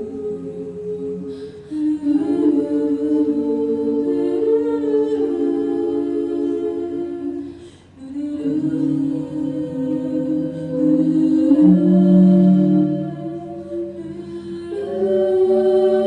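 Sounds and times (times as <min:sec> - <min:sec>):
a cappella group singing chords: 0:00.0 - 0:16.0.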